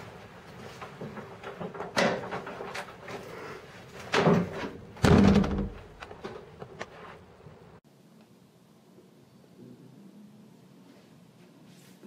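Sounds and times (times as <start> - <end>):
door knocking and banging shut: 4.1 - 6.5.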